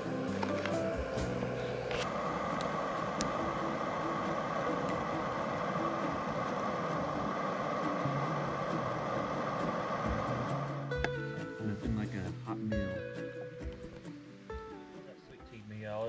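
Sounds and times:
gas stove roar: 0.0 - 12.2
faint campfire crackles: 0.0 - 16.0.

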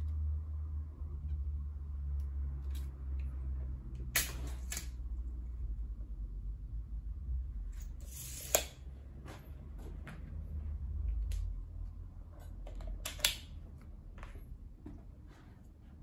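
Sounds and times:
glass cutter scoring glass: 8.0 - 8.8.

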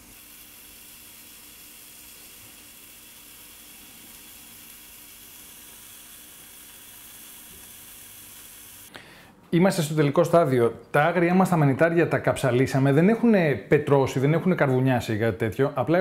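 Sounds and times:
risotto sizzling hiss: 0.0 - 8.9.

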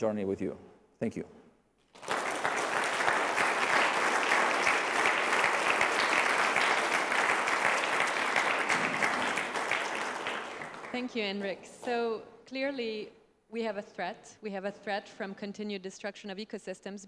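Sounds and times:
audience applauding: 1.9 - 11.6.

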